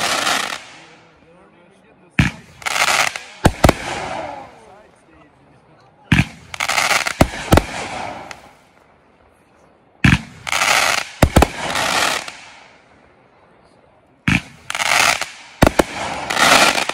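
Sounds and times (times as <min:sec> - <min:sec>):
firework shells crackling: 0:00.0 - 0:01.0, 0:02.2 - 0:04.6, 0:06.1 - 0:08.8, 0:10.0 - 0:12.8, 0:14.3 - 0:16.9
sharp firework cracks: 0:00.0 - 0:01.1, 0:02.2 - 0:04.6, 0:06.1 - 0:08.6, 0:10.0 - 0:12.8, 0:14.3 - 0:16.9.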